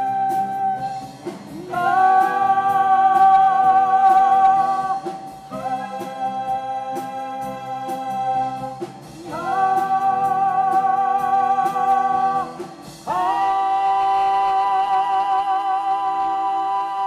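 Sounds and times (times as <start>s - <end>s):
backing track beat: 0.0s - 17.0s
woman singing high vocalise: 1.6s - 17.0s.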